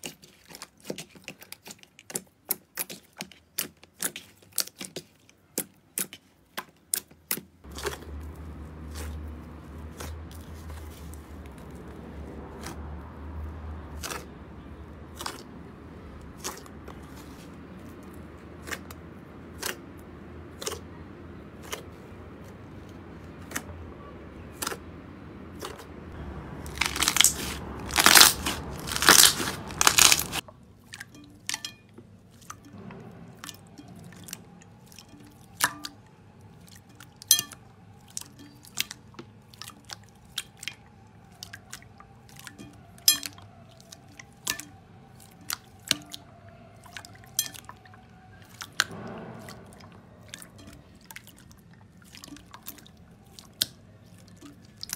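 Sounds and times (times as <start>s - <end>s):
slime crackling: 0.0s - 23.7s, 25.5s - 30.5s.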